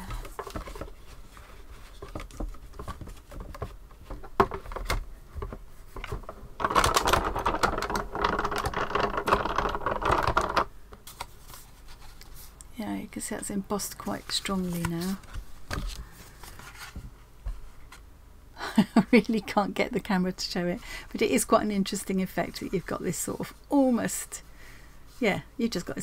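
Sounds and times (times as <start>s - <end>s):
plastic plates clicking and tapping: 2.0s - 10.7s.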